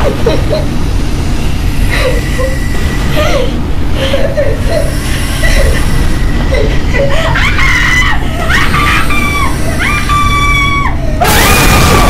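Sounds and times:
woman screaming in terror: 7.1 - 12.0.

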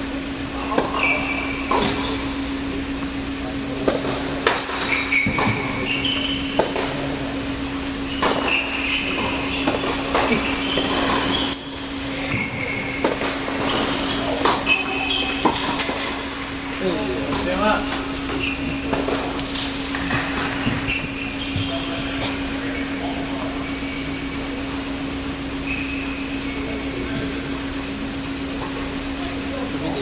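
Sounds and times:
steady hum: 0.0 - 30.0
shoes squeaking on court: 0.6 - 2.5, 3.2 - 7.1, 8.0 - 24.6, 25.6 - 27.6
tennis balls struck and bouncing: 3.8 - 6.9, 8.2 - 11.6, 12.3 - 16.5.

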